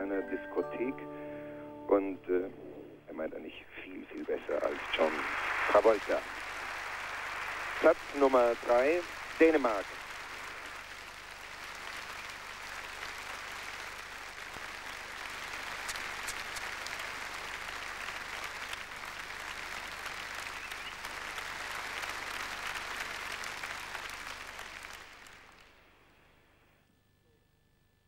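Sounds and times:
large audience applauding: 4.1 - 26.1.

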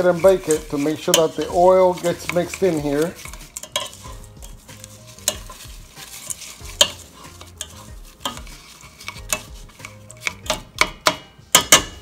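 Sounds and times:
frying sizzle: 0.0 - 12.0
wooden spoon stirring vegetables: 0.0 - 12.0
spoon knocking against pot: 6.7 - 12.0.

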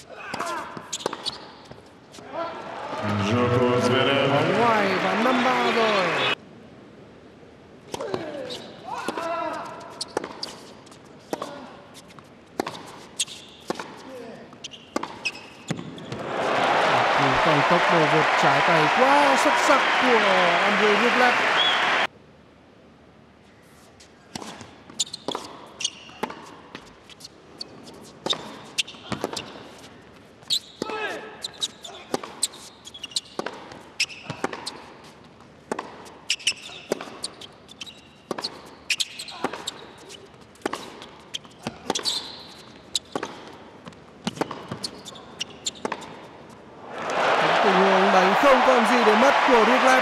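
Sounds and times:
shoe squeaks: 0.0 - 1.9, 8.4 - 8.8, 9.4 - 16.2, 24.5 - 35.3, 36.1 - 43.4, 44.2 - 46.2
tennis ball bouncing: 0.3 - 1.9, 10.0 - 11.5, 12.1 - 16.2, 24.3 - 27.0, 27.8 - 29.8, 31.6 - 46.3
racket hitting tennis ball: 10.0 - 10.7, 12.6 - 14.1, 14.9 - 16.2, 28.2 - 29.6, 33.3 - 37.5, 38.3 - 45.0, 45.7 - 46.3.

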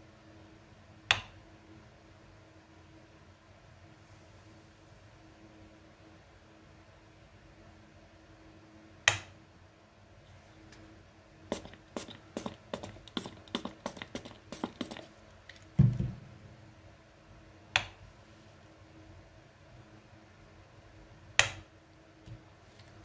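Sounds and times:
click: 9.1 - 9.3, 21.4 - 21.6
spray bottle spritzing: 11.5 - 15.1
dull thump: 15.8 - 16.3.

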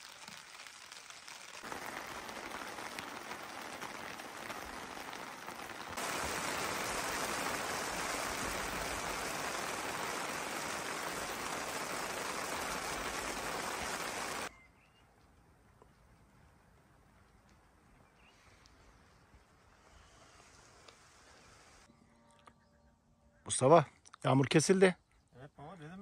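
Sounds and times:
heavy rain pouring: 0.0 - 14.5
faint bird chirps: 14.5 - 15.2, 17.2 - 23.5, 24.8 - 26.0.

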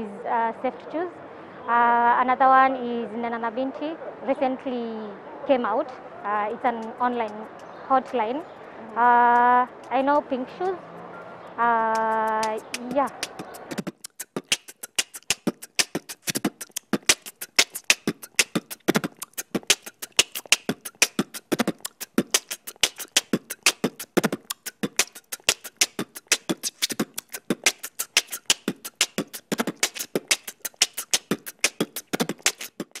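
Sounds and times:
clicking percussion music: 8.9 - 10.8, 11.6 - 33.0.

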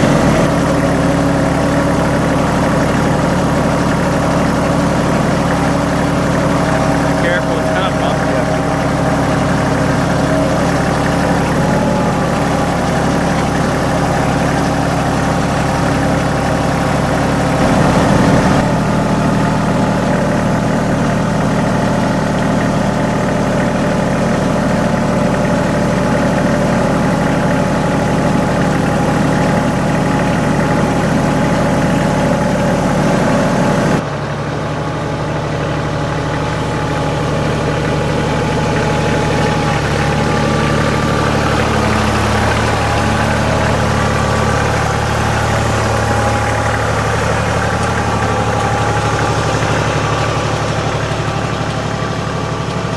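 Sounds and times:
diesel tractor engine running: 0.0 - 52.9.

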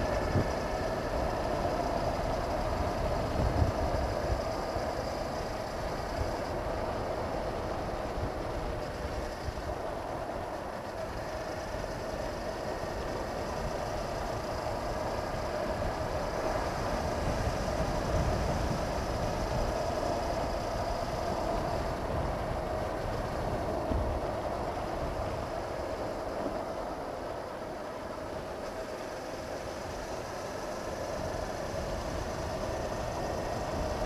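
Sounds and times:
wind rushing over microphone: 0.0 - 34.0.

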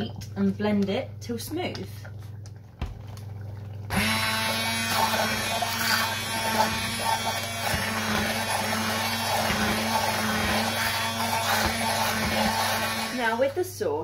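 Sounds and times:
immersion blender buzzing: 3.9 - 13.4.

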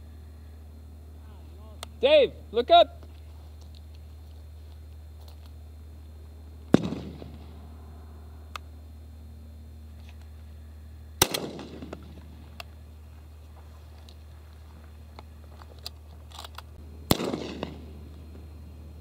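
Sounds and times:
rolling echo: 6.6 - 8.7, 11.2 - 12.9, 16.8 - 18.9
shotgun shots: 6.7 - 7.6, 11.2 - 12.5, 17.1 - 17.9.

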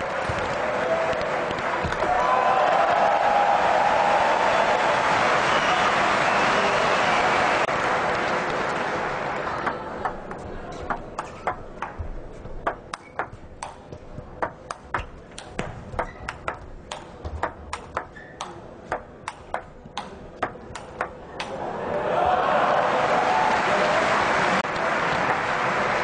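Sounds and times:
crowd applause: 0.0 - 10.2, 21.4 - 26.0
table tennis ball knocking: 9.6 - 21.5.

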